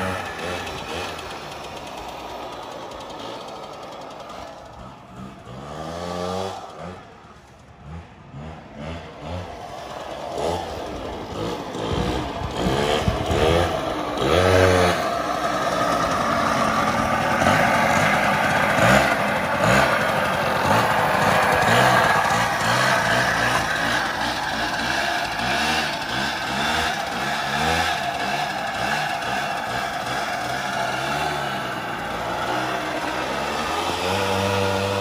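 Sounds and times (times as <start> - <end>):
quad engine revving: 0.0 - 35.0.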